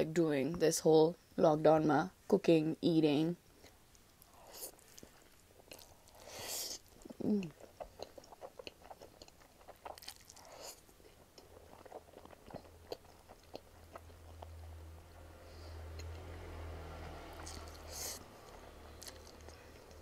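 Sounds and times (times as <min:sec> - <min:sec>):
wet chewing: 0:03.6 - 0:14.8, 0:17.4 - 0:20.0
noodle slurping: 0:04.3 - 0:10.8.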